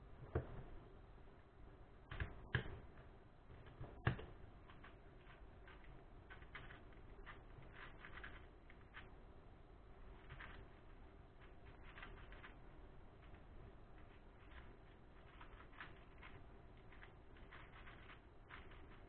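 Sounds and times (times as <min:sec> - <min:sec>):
puzzle cube plastic clicks: 0:04.0 - 0:09.1, 0:14.4 - 0:19.0.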